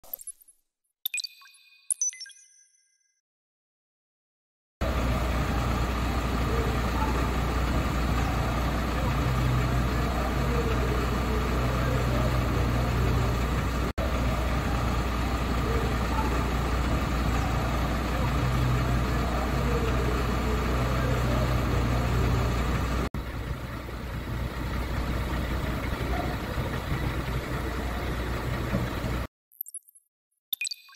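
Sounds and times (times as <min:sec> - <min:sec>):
diesel engine idling: 0:04.8 - 0:29.3.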